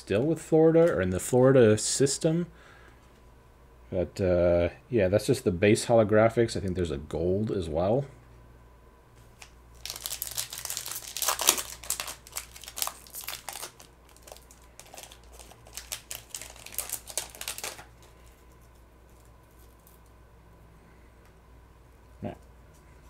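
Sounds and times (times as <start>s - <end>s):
wrapper tearing and crinkling: 9.4s - 18.4s.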